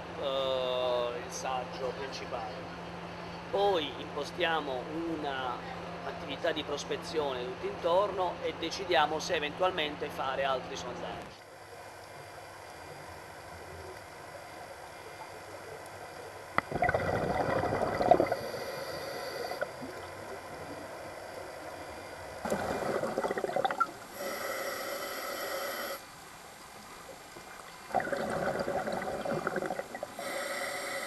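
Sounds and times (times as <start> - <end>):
gurgling exhaled bubbles: 16.5 - 24.4, 27.1 - 30.5
regulator inhale hiss: 18.0 - 19.8, 24.0 - 26.1, 29.9 - 31.0.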